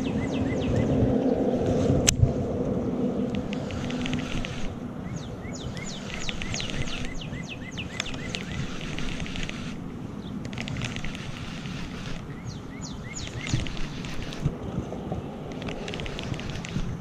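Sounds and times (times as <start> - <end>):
bird chirping: 0.0 - 1.5, 3.2 - 14.5
wind rumbling on microphone: 0.0 - 17.0
sharp click: 5.7 - 7.2, 7.8 - 9.8.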